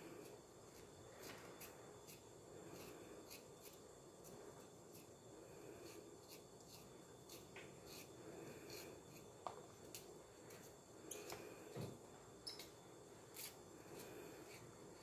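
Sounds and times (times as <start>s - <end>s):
knife scraping meat: 0.2s - 5.1s, 5.8s - 9.3s, 13.3s - 14.7s.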